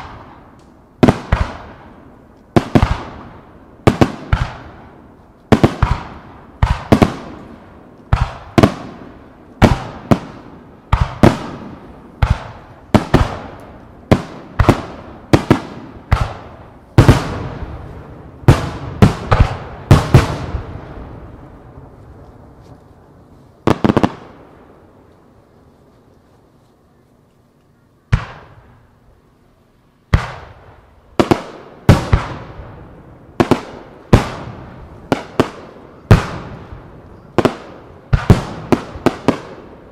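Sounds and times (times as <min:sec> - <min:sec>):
fireworks bursting with echo: 0:00.0 - 0:25.3, 0:28.1 - 0:28.9, 0:30.1 - 0:39.9.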